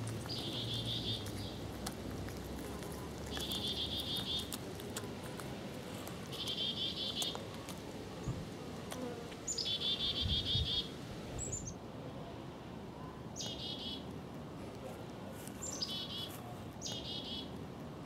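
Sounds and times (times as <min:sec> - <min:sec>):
songbird singing: 0:00.0 - 0:05.4, 0:06.2 - 0:08.5, 0:09.4 - 0:11.8, 0:13.4 - 0:14.1, 0:15.6 - 0:17.6.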